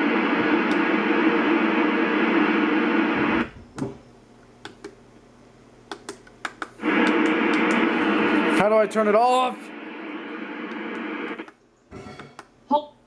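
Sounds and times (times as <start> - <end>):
radio static hiss: 0.0 - 3.6, 6.8 - 12.1.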